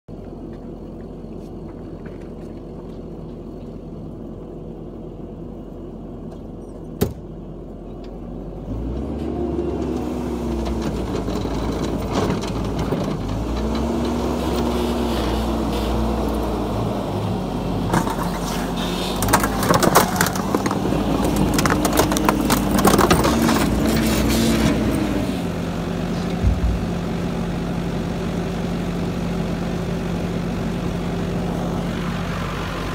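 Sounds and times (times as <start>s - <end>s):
loader engine idling and revving: 0.1s - 32.9s
microwave oven being crushed: 19.2s - 24.1s.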